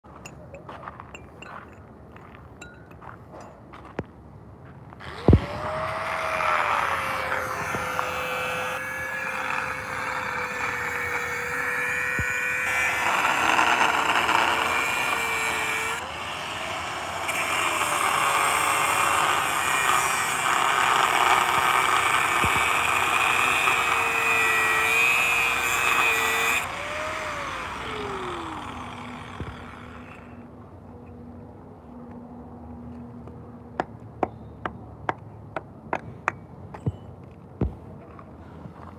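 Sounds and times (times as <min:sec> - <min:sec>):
angle grinder cutting steel: 0:05.0 - 0:30.4
harsh grinding noise: 0:05.0 - 0:30.4.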